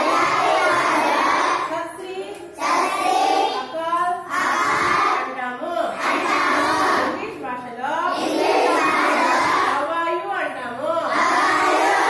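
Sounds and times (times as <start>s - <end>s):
children chanting in unison: 0.0s - 1.7s, 2.6s - 5.3s, 5.9s - 7.2s, 8.1s - 9.8s, 11.1s - 12.0s.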